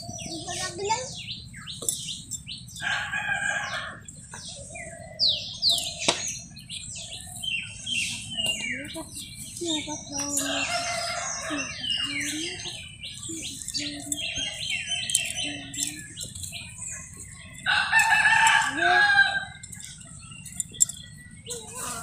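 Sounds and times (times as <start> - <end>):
chickens clucking: 0.0 - 22.0
small birds chirping: 0.0 - 22.0
rooster crowing: 2.8 - 4.0, 10.4 - 12.0, 17.7 - 19.6.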